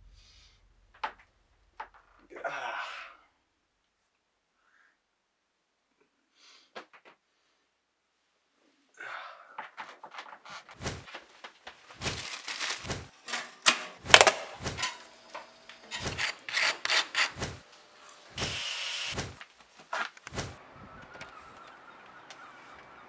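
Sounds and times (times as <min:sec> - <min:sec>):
kitchen objects clicking and knocking: 0:12.9 - 0:17.6.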